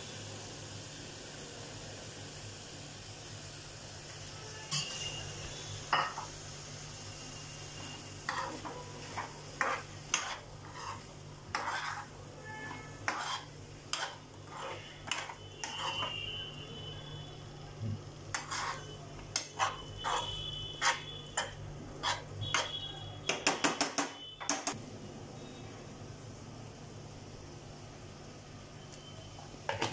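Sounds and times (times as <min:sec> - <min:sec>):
metal spoon scraping frying pan: 0:04.7 - 0:05.3, 0:08.2 - 0:16.4, 0:18.3 - 0:22.8.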